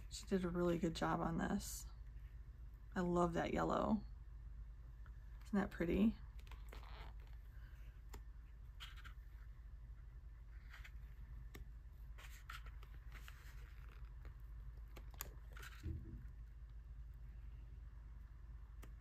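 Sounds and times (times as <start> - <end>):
paper pages turning: 6.4 - 9.5, 10.5 - 15.9
soft low thump: 15.8 - 16.3.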